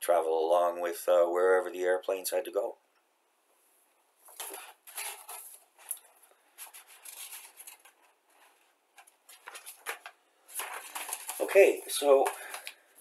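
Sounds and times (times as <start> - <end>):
paper rustling and crackling: 4.3 - 13.0.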